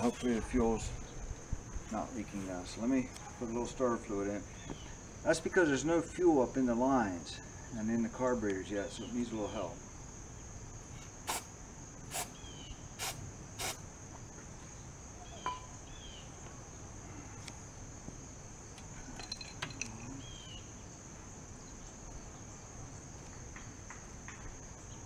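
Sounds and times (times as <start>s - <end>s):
crickets chirring: 0.0s - 25.0s
faint bird chirps: 4.5s - 5.0s, 12.2s - 13.7s, 14.7s - 17.4s, 19.9s - 20.8s
aerosol spray squirts: 11.2s - 11.5s, 12.1s - 12.4s, 13.0s - 13.8s.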